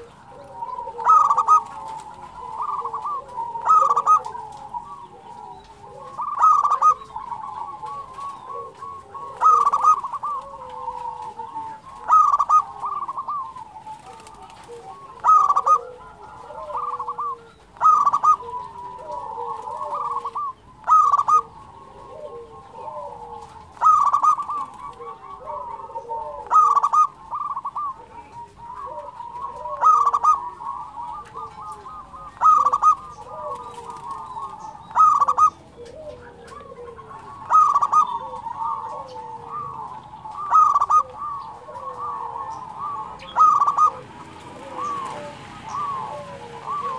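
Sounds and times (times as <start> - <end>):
dove staccato cooing: 0.0 - 46.9
soft cooing: 0.0 - 46.9.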